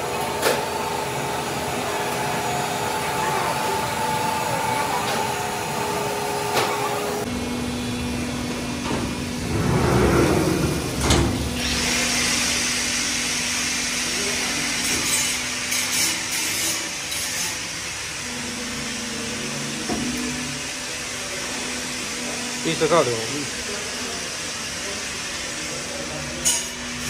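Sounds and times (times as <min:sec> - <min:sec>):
machine motor hum: 0:00.0 - 0:14.9.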